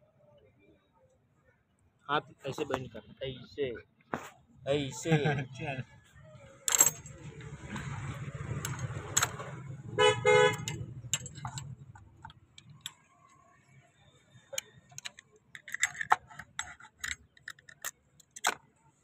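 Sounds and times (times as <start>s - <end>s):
low engine rumble: 6.9s - 13.0s
vehicle horn toots: 9.8s - 11.0s.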